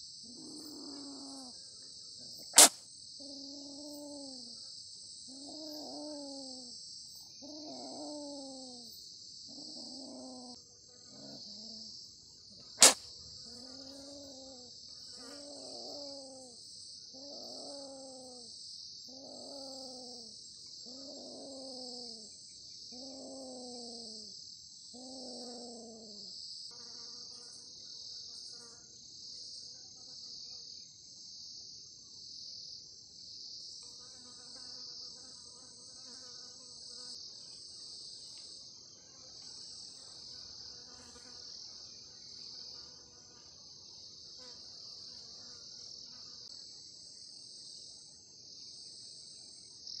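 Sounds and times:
crickets trilling: 0.0 - 50.0
low animal call: 0.3 - 1.6, 5.3 - 6.7, 7.4 - 8.9, 12.8 - 18.5, 19.1 - 22.3, 22.9 - 24.3
sharp click: 2.6 - 2.8, 12.8 - 13.0.

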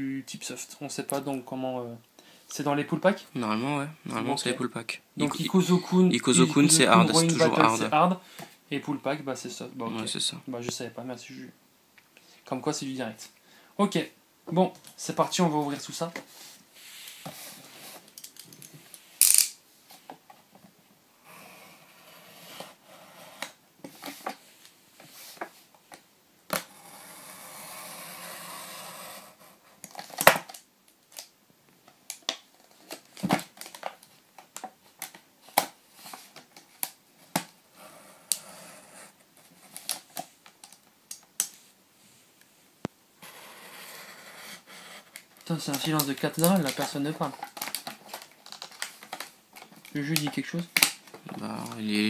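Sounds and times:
plastic packaging crinkling: 45.4 - 51.9.

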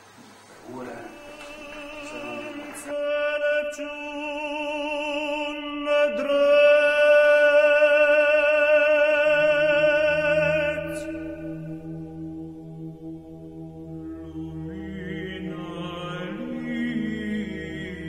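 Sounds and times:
person chanting long wavering notes: 0.6 - 18.0.

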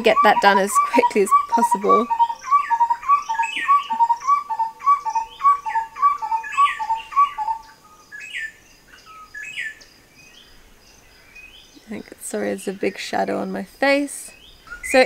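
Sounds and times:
birds calling short notes: 0.0 - 9.9
high falling bird chirps: 0.0 - 11.8.

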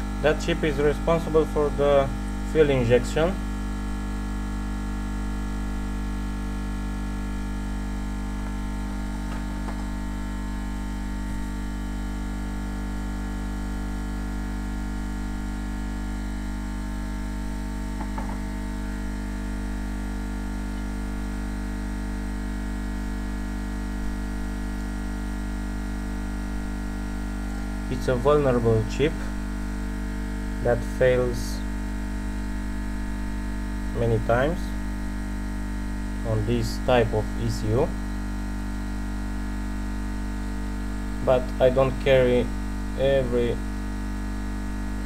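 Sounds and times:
electrical mains hum: 0.0 - 45.0.

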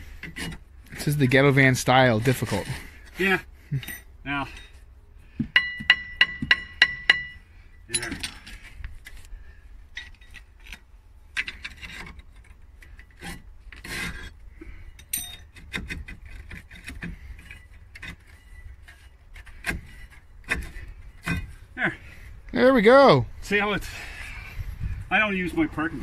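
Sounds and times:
metal scraping and clinking: 2.2 - 4.9, 5.6 - 9.3, 9.9 - 21.6.

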